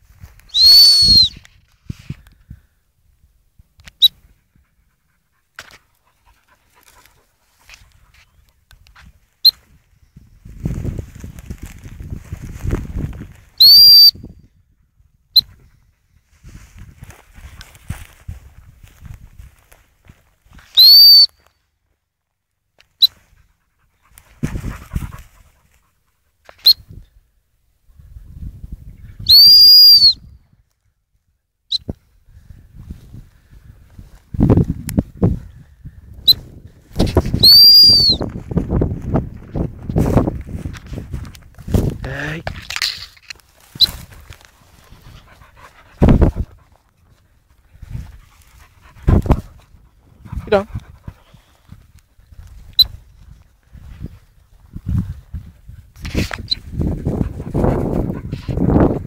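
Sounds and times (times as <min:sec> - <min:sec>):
dog whining yelps: 0:37.4 - 0:38.2.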